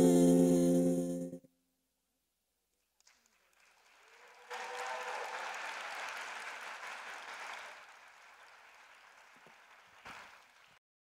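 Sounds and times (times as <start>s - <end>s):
audience applauding: 3.0s - 10.8s.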